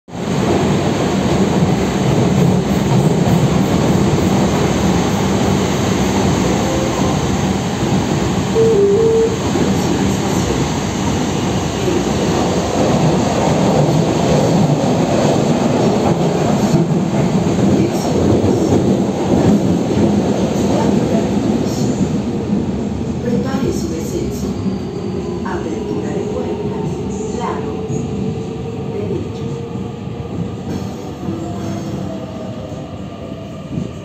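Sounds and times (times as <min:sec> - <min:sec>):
train wheels rumbling on rails: 0:00.1 - 0:32.6
short tone: 0:08.6 - 0:09.4.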